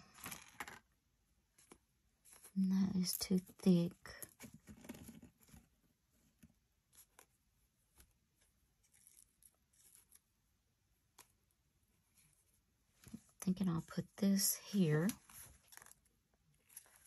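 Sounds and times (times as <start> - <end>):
paper rustling: 6.9 - 10.3, 15.0 - 17.0.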